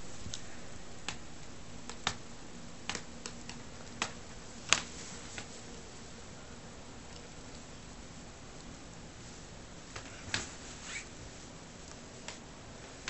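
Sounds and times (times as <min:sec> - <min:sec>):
faint low hum: 0:00.0 - 0:13.0.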